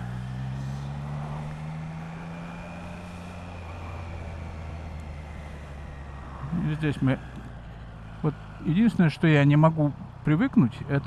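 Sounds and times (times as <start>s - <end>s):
motorcycle engine humming: 0.0s - 11.0s.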